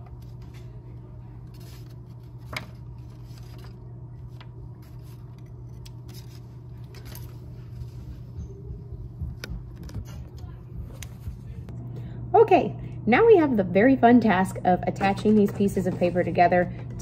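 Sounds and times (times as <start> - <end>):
paper rustling: 0.0 - 8.4
steady low hum: 0.0 - 17.0.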